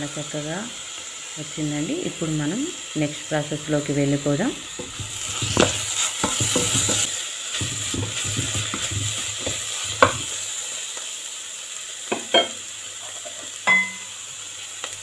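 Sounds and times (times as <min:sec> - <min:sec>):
steady sizzle: 0:00.0 - 0:15.0
spoon knocking against pot: 0:04.8 - 0:10.2, 0:12.1 - 0:12.6
spoon stirring and scraping pot: 0:04.8 - 0:10.4.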